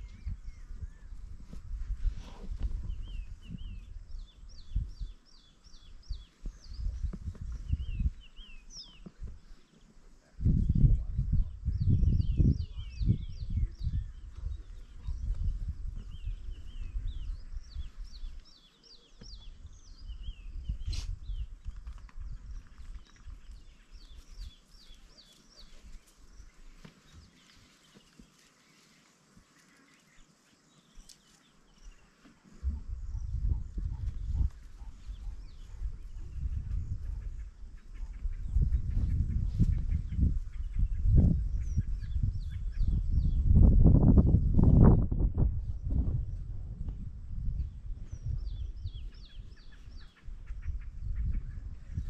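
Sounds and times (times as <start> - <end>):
wild dogs chirping: 32.6 - 38.6.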